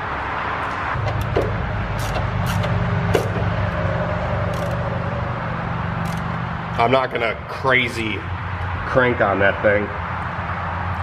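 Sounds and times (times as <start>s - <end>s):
low mechanical hum: 0.6s - 11.0s
ratchet clicks: 1.0s - 3.4s, 4.5s - 4.8s, 6.0s - 6.4s.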